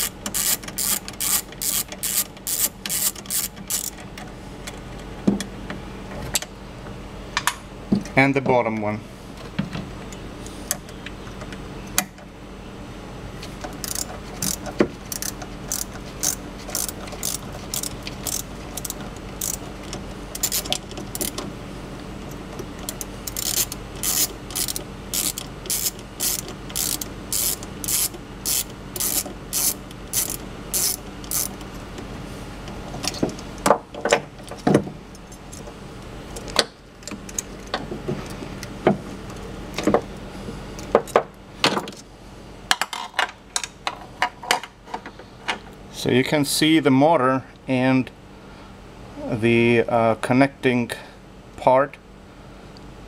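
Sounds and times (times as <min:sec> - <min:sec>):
ratcheting screwdriver clicking: 0:00.0 - 0:04.0, 0:13.8 - 0:19.6, 0:20.4 - 0:21.4, 0:22.8 - 0:31.6.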